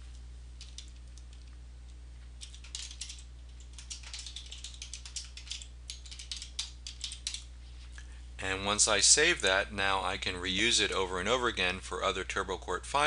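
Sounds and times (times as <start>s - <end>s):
steady low hum: 0.0s - 13.0s
keyboard typing: 2.4s - 7.5s.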